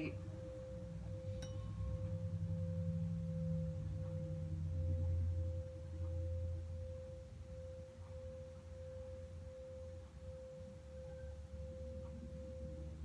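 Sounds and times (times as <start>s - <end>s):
tuning fork humming: 0.0s - 13.0s.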